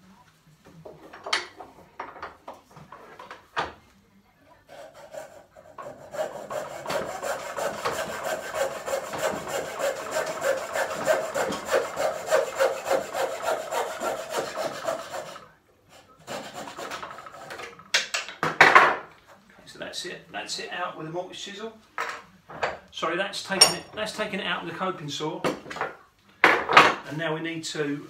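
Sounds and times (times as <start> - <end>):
coping saw cutting wood: 4.7 - 17.7.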